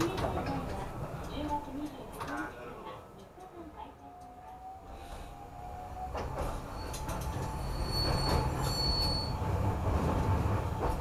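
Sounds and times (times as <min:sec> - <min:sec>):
tram rumble: 0:00.0 - 0:11.0
wheel squeal: 0:06.5 - 0:09.6.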